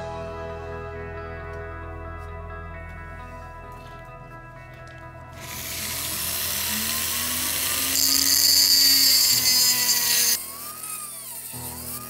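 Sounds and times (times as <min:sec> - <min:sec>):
rotary tool disc grinding: 0:05.4 - 0:12.0.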